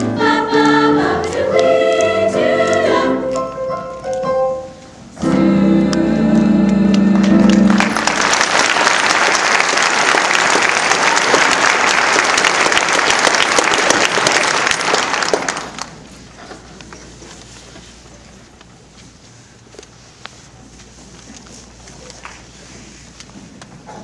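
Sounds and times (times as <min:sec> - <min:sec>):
choir holding a chord: 0:00.0 - 0:03.8
audience applause: 0:07.3 - 0:16.0.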